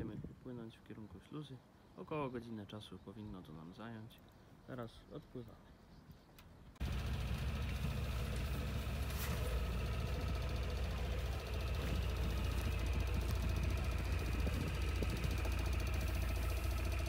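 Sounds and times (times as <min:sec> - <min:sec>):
motorboat engine throbbing: 0:06.8 - 0:17.0.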